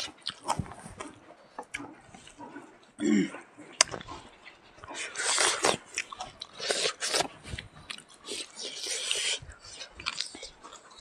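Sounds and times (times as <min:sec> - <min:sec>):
people chewing and biting: 0:00.0 - 0:11.0.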